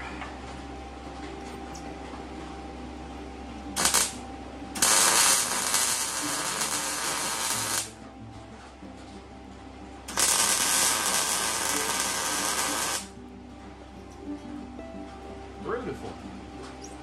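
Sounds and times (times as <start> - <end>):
low steady hum: 0.0 - 17.0
welding arc crackling: 3.8 - 4.2, 4.8 - 8.0, 10.1 - 13.1.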